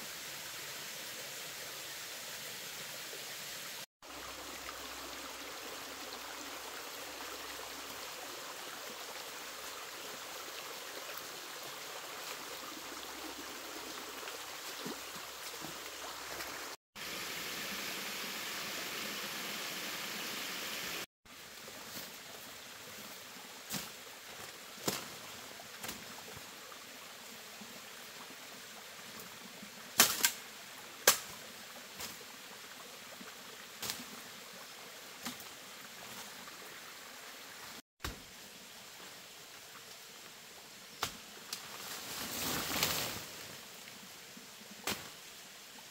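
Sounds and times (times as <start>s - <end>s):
stream water running: 0.0s - 45.9s.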